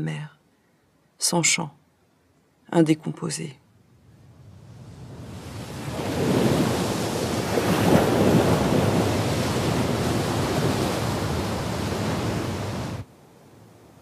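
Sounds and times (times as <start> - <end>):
sea waves breaking on beach: 4.5 - 13.6.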